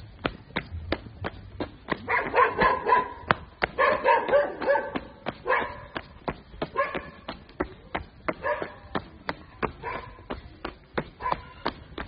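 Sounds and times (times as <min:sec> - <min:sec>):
dog yipping: 0:02.1 - 0:03.2, 0:03.8 - 0:05.9, 0:06.8 - 0:07.2, 0:08.4 - 0:08.8.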